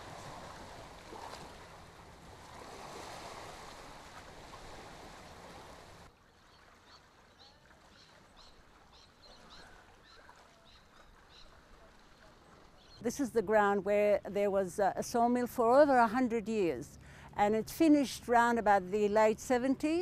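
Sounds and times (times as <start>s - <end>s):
water lapping and sloshing: 0.0s - 13.1s.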